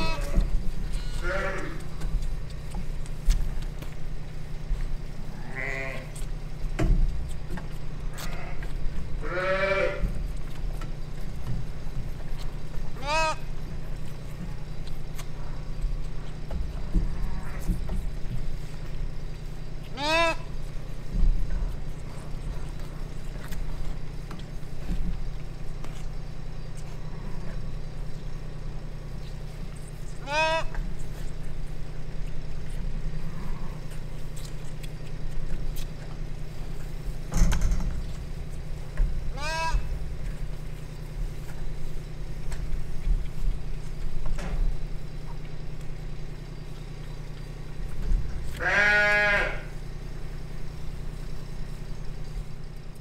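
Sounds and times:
lambs bleating: 0.0 - 2.1, 5.3 - 6.2, 8.1 - 10.2, 12.9 - 13.6, 19.9 - 20.6, 30.2 - 30.8, 39.3 - 40.0, 48.5 - 49.8
steady low hum: 0.0 - 53.0.

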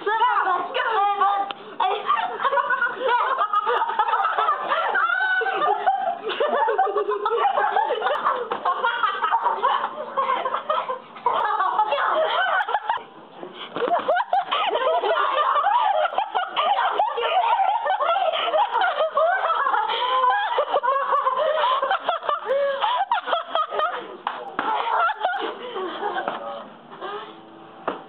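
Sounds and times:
excited talk: 0.0 - 6.0, 11.3 - 13.0
girls laughing and shrieking: 0.1 - 13.1, 13.8 - 27.3.

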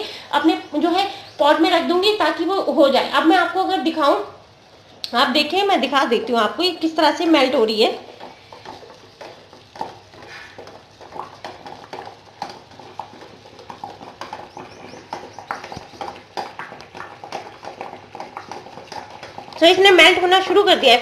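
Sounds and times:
water boiling and bubbling: 0.0 - 21.0
steel bowl knocking against pan: 8.2 - 20.5.

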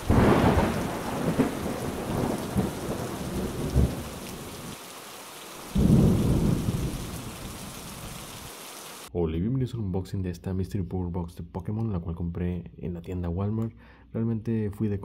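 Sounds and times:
thunder rumbling: 0.0 - 4.8, 5.6 - 8.2
rain falling: 0.0 - 9.1.

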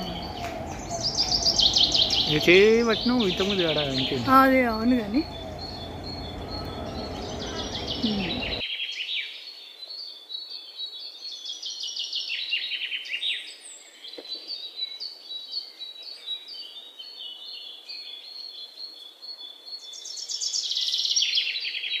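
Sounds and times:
birds chirping in chorus: 0.0 - 8.6.

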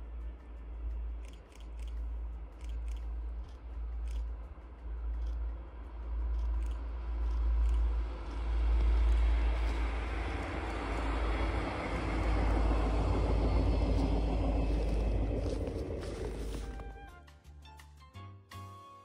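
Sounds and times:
faint crackling clicks: 0.0 - 16.9
passenger railcar running: 0.0 - 17.1
constant low rumble: 0.0 - 17.2.

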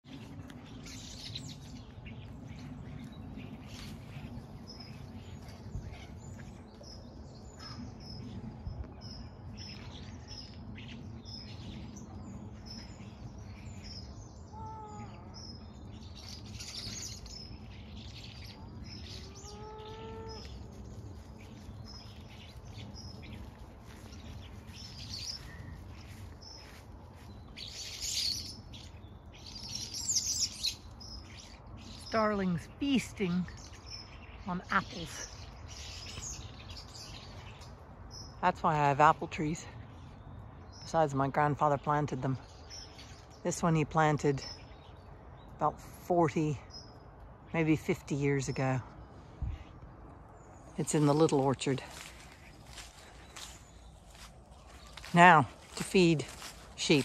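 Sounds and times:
starlings chattering and whistling: 0.1 - 47.1
steady low rumble: 0.1 - 57.0
lower drawn-out bird calls: 12.8 - 26.8.

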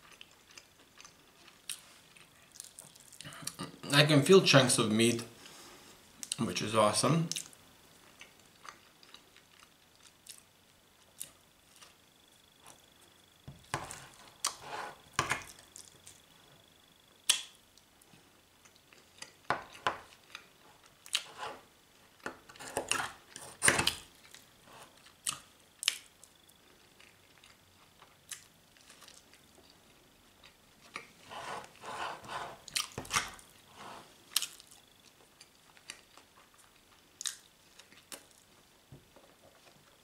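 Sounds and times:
close-up chewing: 0.0 - 3.6, 7.3 - 12.0, 24.2 - 31.8, 32.5 - 38.6.

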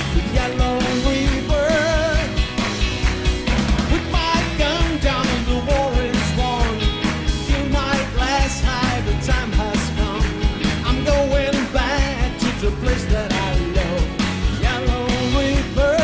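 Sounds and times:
man singing: 0.0 - 2.5, 3.9 - 16.0
live rock band playing: 0.0 - 16.0.

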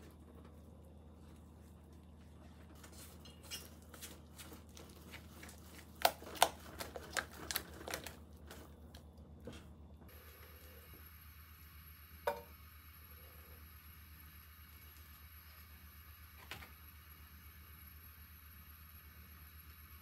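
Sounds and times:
sharp knocks on bowl: 12.3 - 12.5.

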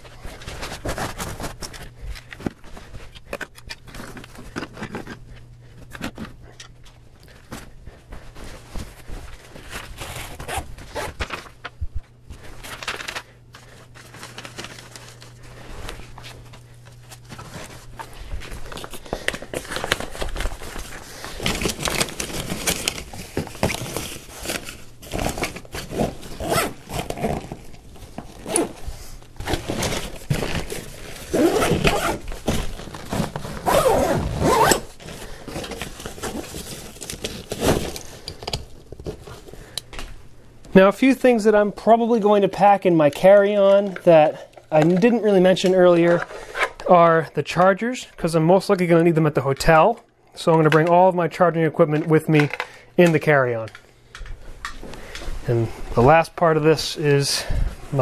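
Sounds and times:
cloth rustling and crinkling: 0.0 - 38.2
zip pulled shut: 33.6 - 34.9.

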